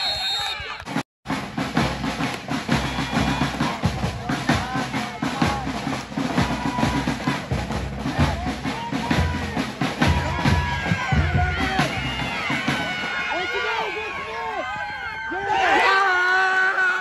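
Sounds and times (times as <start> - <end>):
fast drumming: 1.3 - 14.3
voices: 2.2 - 17.0.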